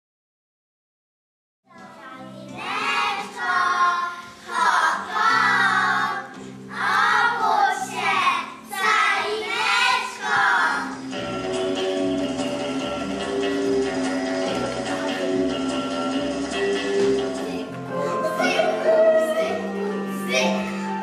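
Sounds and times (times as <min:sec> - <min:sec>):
children singing in unison: 0:02.5 - 0:11.0, 0:17.0 - 0:21.0
sustained instrumental accompaniment: 0:10.8 - 0:21.0.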